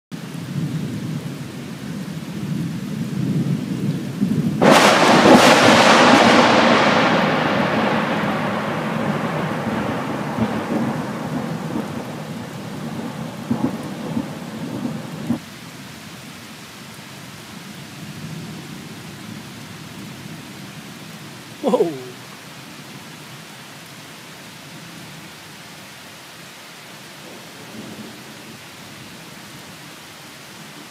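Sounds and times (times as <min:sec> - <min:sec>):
thunder rumble: 0:03.1 - 0:15.4
rain hissing: 0:03.4 - 0:30.9
loud thunderclap: 0:04.4 - 0:15.4.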